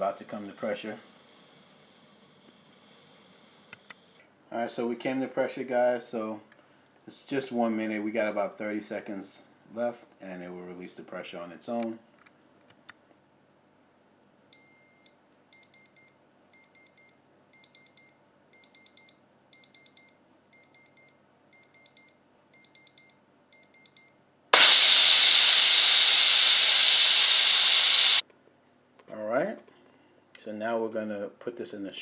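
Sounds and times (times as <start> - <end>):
steam venting hiss: 0.0 - 4.2, 24.6 - 28.2
pressure cooker beeping: 24.6 - 28.2.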